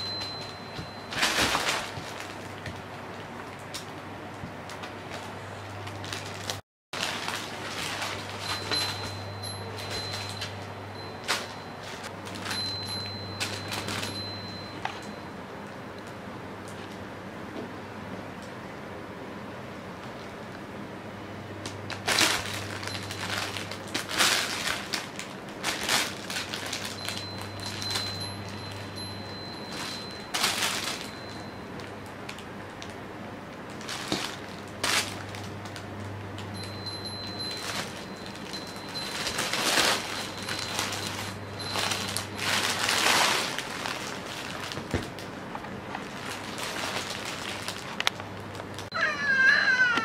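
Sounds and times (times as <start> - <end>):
nylon fabric rustling: 6.0 - 14.7, 36.7 - 45.2.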